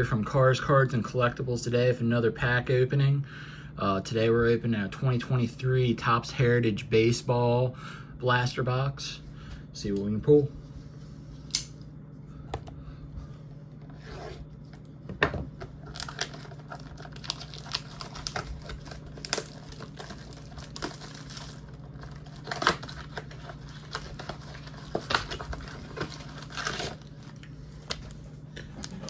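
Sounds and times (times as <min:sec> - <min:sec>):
packaging tearing and rustling: 0:15.7 - 0:28.2.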